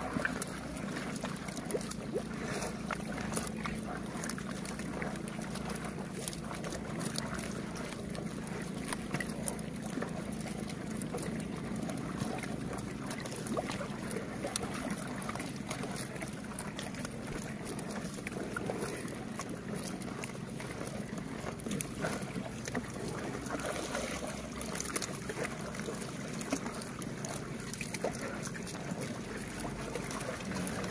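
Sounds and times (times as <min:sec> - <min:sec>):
buffaloes chewing grass: 0:00.0 - 0:30.9
steady low hum: 0:00.0 - 0:30.9
water sloshing: 0:00.0 - 0:30.9.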